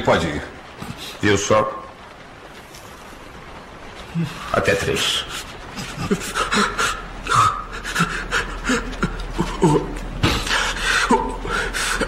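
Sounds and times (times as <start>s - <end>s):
man panting and gasping: 7.7s - 12.0s.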